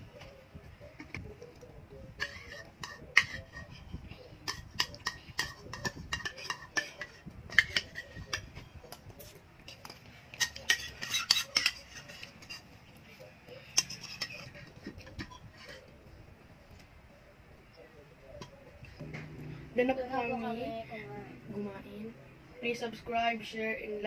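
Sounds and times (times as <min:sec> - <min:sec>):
spoons clinking against bowls: 0:02.2 - 0:03.8, 0:04.4 - 0:12.8, 0:13.5 - 0:15.9.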